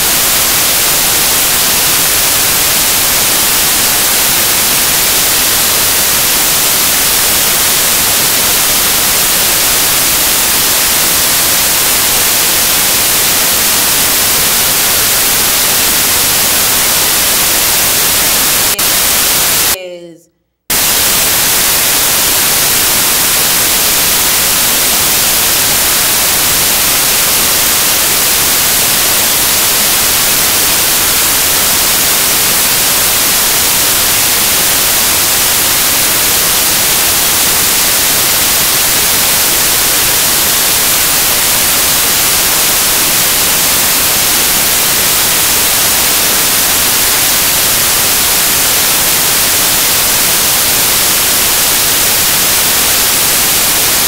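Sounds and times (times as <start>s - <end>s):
loud static hiss: 0.0s - 20.0s, 20.7s - 54.0s.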